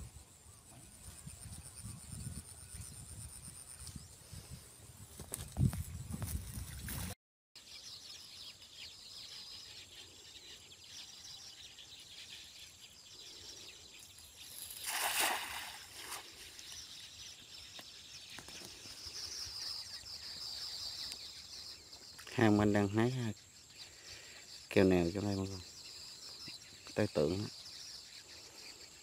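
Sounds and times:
faint high-pitched outdoor background: 7.6 - 29.0
net splashing into water: 14.6 - 16.4.

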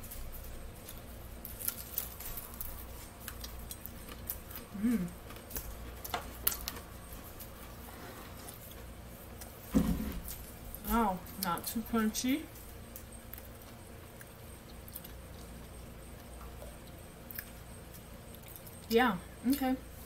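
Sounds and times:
chewing fried chicken: 0.1 - 9.6, 10.2 - 18.9
person humming: 4.7 - 5.2.

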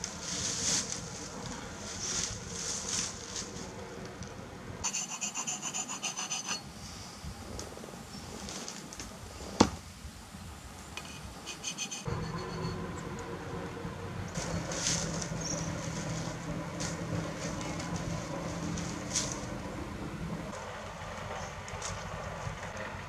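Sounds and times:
sharpening stone rasping on steel: 4.8 - 6.6, 11.5 - 12.1
short ringing stone strokes: 4.8 - 6.7.

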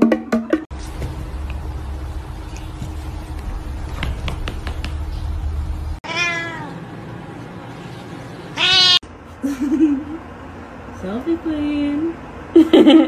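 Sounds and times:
steady low hum: 0.7 - 13.0
cat meowing: 6.0 - 6.8, 8.6 - 9.0.

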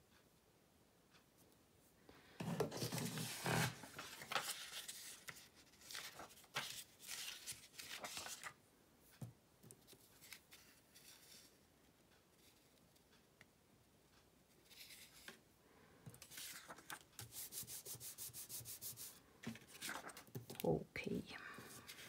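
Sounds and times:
paper rustling and scraping: 2.4 - 8.6, 16.2 - 20.3.

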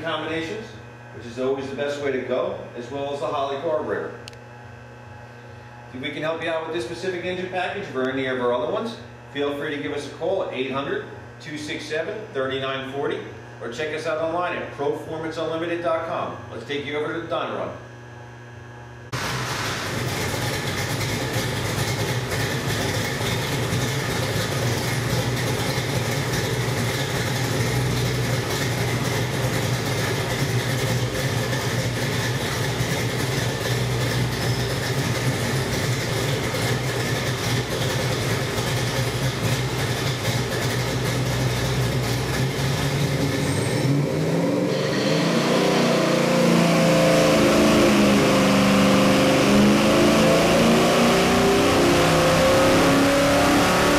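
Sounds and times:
engine idling and revving: 19.1 - 53.9.

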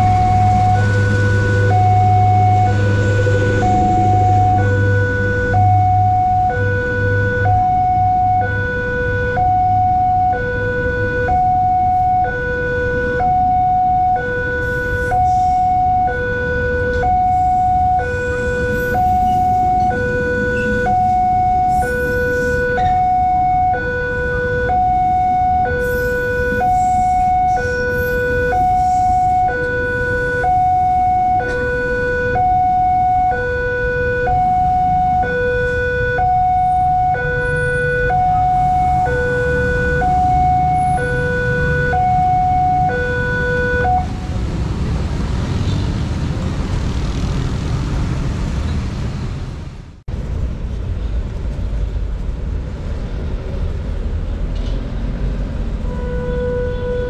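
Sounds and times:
train rumbling past: 0.0 - 6.5
two-tone warning siren: 0.0 - 45.8, 55.8 - 57.0.

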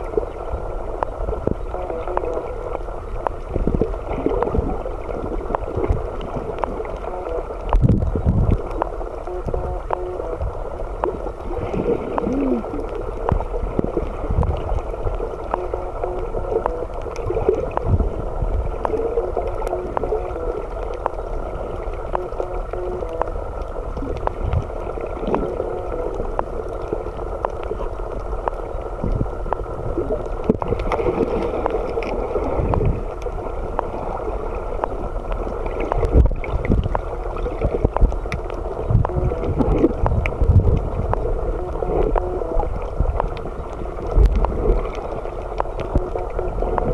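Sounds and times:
muffled underwater rush: 0.0 - 46.9
small clicks: 1.0 - 46.9.

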